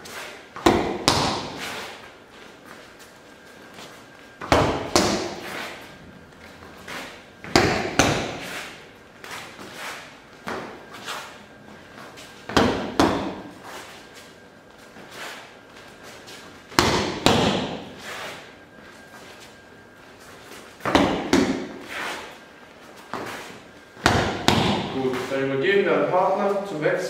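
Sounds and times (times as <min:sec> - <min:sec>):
punches slapping focus mitt: 0:00.6 - 0:01.6, 0:24.0 - 0:25.0.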